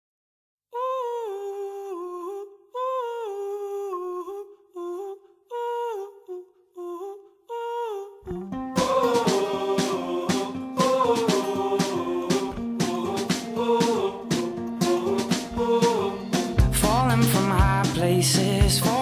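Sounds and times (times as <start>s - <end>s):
wordless humming vocal: 0.8s - 19.0s.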